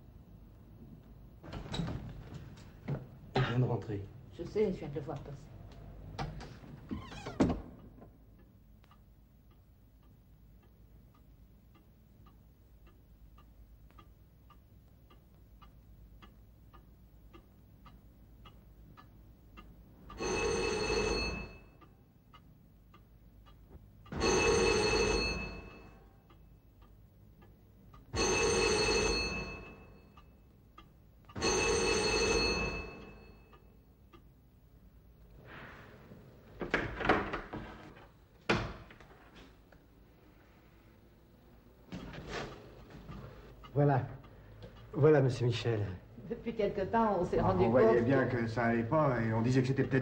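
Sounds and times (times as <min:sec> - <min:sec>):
clock ticking: 0:07.8 - 0:20.5, 0:21.8 - 0:24.8, 0:25.9 - 0:28.5, 0:30.0 - 0:31.9, 0:32.8 - 0:34.8, 0:42.6 - 0:46.1
telephone bell ringing: 0:20.2 - 0:21.8, 0:24.2 - 0:26.0, 0:28.1 - 0:30.2, 0:31.4 - 0:33.5.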